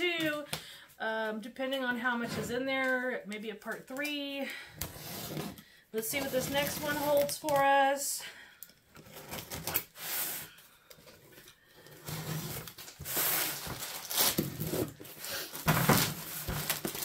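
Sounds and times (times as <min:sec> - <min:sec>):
cardboard scraping: 0:04.9 - 0:05.6, 0:12.0 - 0:17.0
knife slitting packing tape: 0:12.9 - 0:14.7.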